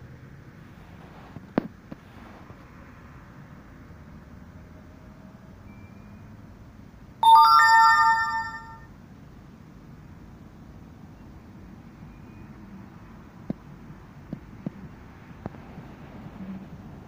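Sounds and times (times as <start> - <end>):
bright electronic chime: 7.2 - 8.8.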